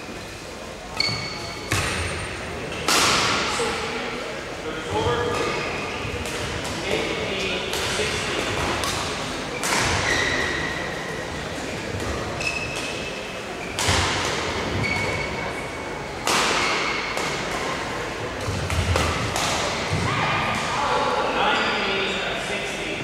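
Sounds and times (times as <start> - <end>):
shoe squeaks: 0.9 - 2.1, 9.9 - 11.3, 12.4 - 13.8, 14.8 - 15.8.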